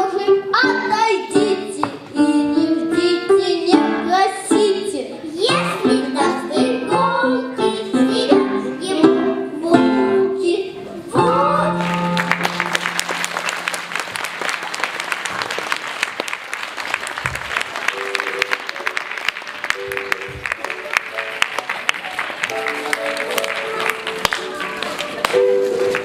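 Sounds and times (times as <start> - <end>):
child singing: 0.0 - 12.0
instrumental accompaniment: 0.0 - 15.1, 17.3 - 26.0
audience applause: 11.8 - 26.0.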